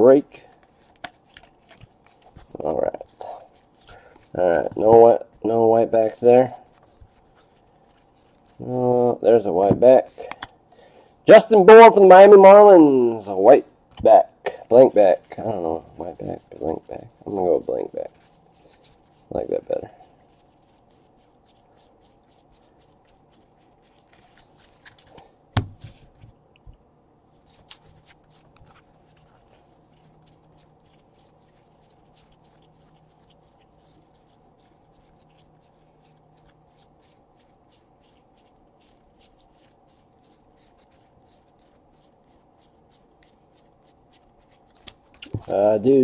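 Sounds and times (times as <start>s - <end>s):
cards flicked by hand: 9.7s - 10.6s, 24.2s - 26.8s.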